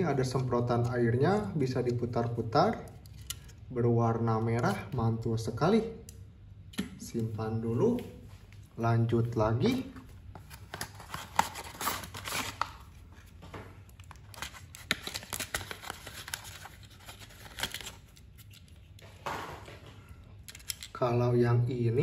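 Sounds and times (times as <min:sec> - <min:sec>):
cardboard and plastic packaging rustling: 0:09.6 - 0:20.9.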